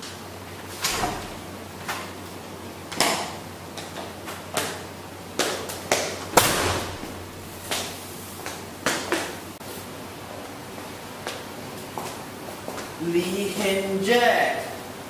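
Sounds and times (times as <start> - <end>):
heavy thud: 6.3 - 8.0.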